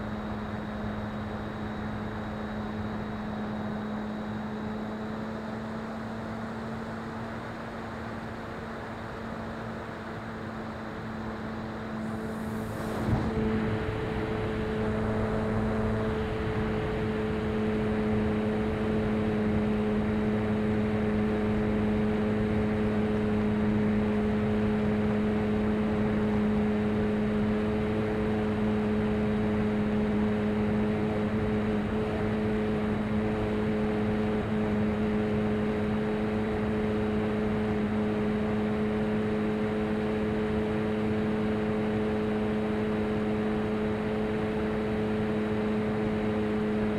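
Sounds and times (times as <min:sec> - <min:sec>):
rush of air: 0:12.0 - 0:16.9.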